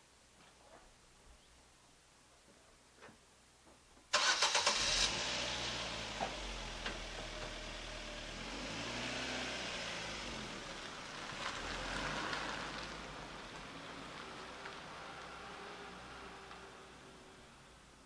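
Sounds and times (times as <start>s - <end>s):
car starter cranking: 4.1s - 6.1s
car engine idling: 4.2s - 8.6s.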